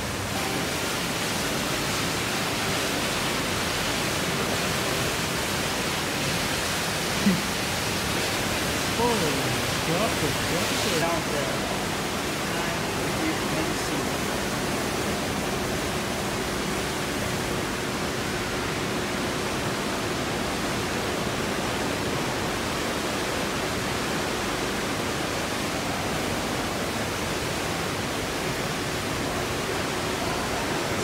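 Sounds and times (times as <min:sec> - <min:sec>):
water rushing through aquarium pump: 0:00.0 - 0:31.0.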